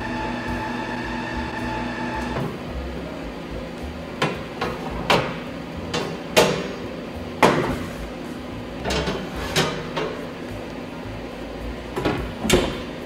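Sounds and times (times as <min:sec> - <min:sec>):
metal pans knocking on oven rack: 0:04.2 - 0:06.8.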